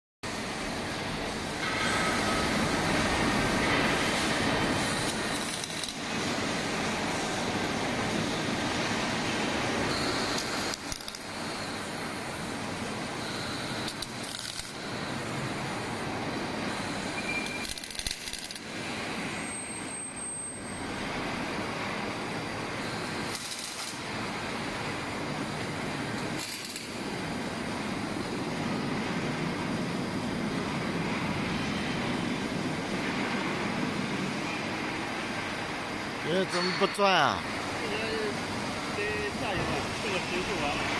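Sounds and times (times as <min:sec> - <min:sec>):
shop noise: 0:00.2 - 0:40.9
faint high whine: 0:00.3 - 0:40.9
welding arc crackling: 0:00.6 - 0:12.8, 0:13.6 - 0:18.8, 0:22.8 - 0:28.4
welding arc hissing: 0:00.6 - 0:19.2, 0:22.8 - 0:29.2
machinery running: 0:36.2 - 0:40.9.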